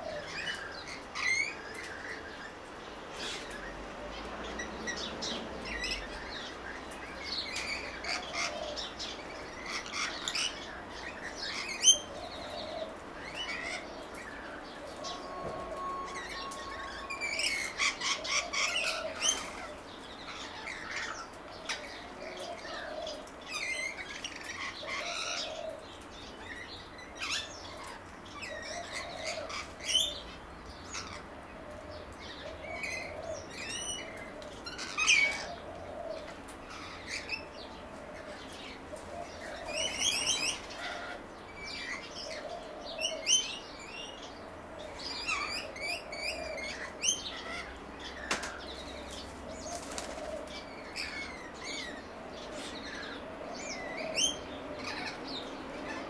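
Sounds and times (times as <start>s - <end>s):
dove cooing: 0.0s - 2.2s, 7.2s - 26.0s, 27.3s - 30.4s, 31.0s - 43.8s, 44.5s - 56.0s
songbirds chirping: 0.0s - 56.0s.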